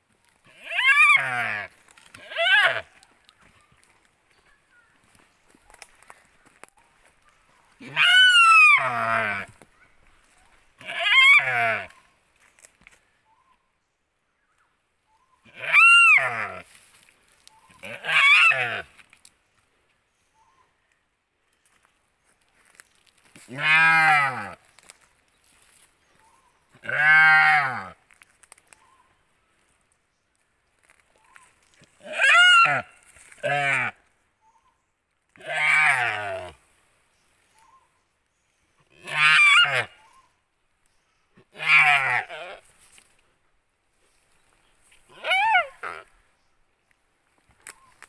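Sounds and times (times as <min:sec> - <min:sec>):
deer bleating in distress: 0:00.4 - 0:03.0, 0:07.8 - 0:09.6, 0:10.8 - 0:12.0, 0:15.4 - 0:16.7, 0:17.8 - 0:19.0, 0:23.5 - 0:24.6, 0:26.8 - 0:28.0, 0:32.0 - 0:34.0, 0:35.4 - 0:36.6, 0:38.9 - 0:40.1, 0:41.4 - 0:42.7, 0:45.1 - 0:46.1.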